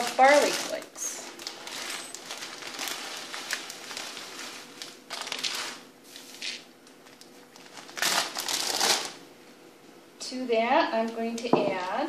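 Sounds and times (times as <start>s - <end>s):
dry flakes pouring into a cup: 0.0s - 6.6s
plastic bag crinkling: 0.0s - 9.2s.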